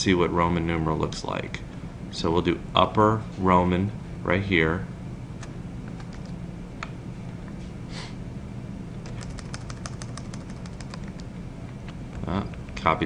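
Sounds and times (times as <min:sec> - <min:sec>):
low steady hum: 0:00.0 - 0:13.0
computer mouse clicks: 0:05.4 - 0:06.4, 0:09.0 - 0:11.3
keyboard key presses: 0:06.0 - 0:06.3, 0:09.0 - 0:11.3.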